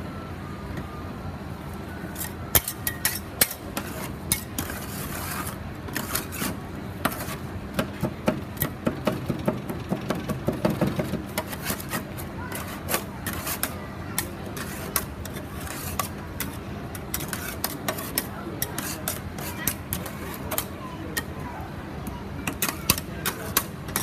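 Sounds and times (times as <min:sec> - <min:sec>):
steady background hum: 0:00.0 - 0:24.0
metal spatulas scraping steel: 0:02.1 - 0:07.5, 0:11.3 - 0:21.3, 0:22.5 - 0:24.0.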